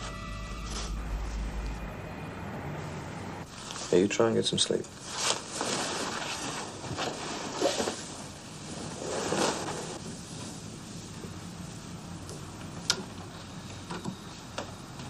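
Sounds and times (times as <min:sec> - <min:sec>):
bedclothes rustling: 0:03.5 - 0:11.6.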